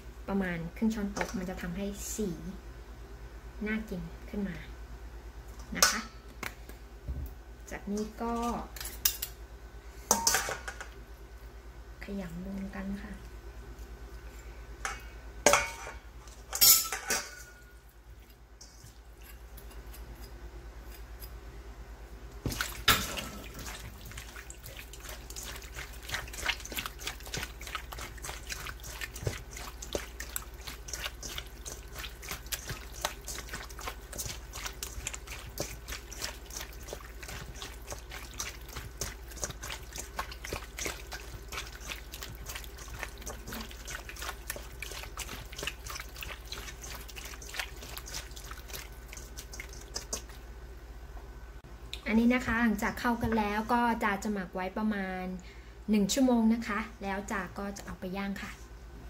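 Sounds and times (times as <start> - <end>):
wet squelching of kneading: 22.4 - 50.6.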